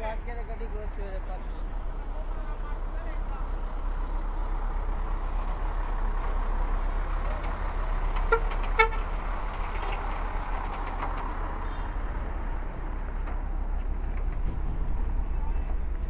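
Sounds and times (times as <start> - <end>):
diesel dump truck rumbling: 0.0 - 16.0
vehicle horn toots: 8.3 - 9.1.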